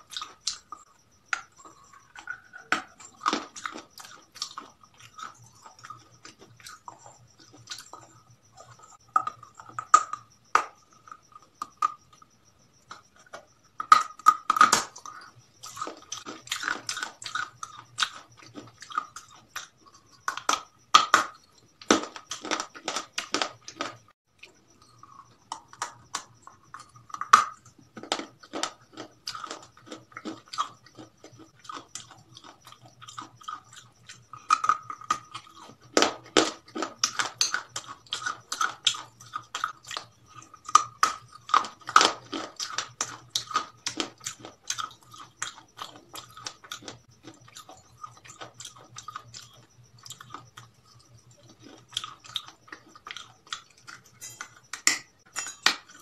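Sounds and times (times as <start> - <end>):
crunchy bites of fried food: 0.0 - 12.0, 12.8 - 56.0
wet chewing: 0.0 - 12.0, 12.8 - 55.2.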